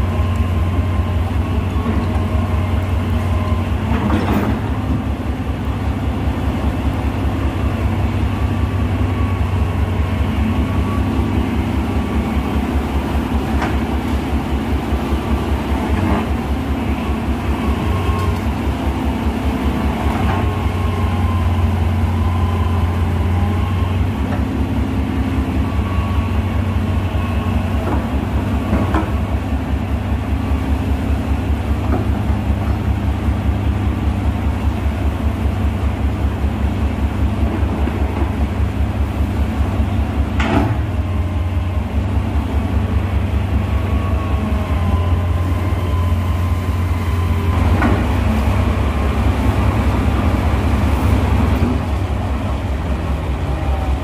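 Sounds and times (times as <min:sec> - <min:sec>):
excavator diesel engine running: 0:00.0 - 0:54.0
excavator tracks clanking: 0:01.6 - 0:05.3, 0:13.1 - 0:20.8, 0:27.7 - 0:29.4, 0:40.3 - 0:41.1, 0:47.5 - 0:53.9.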